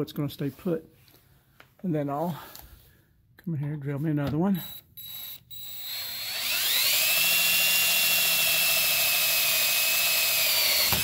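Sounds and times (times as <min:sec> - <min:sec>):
cordless drill whining: 0:04.6 - 0:11.0.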